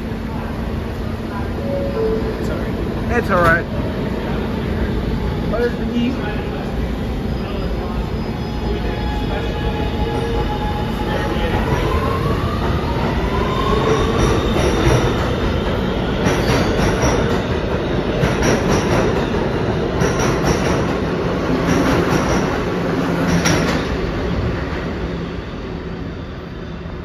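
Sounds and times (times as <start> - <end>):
train wheels clicking over rail joints: 13.9 - 21.0, 21.6 - 23.9.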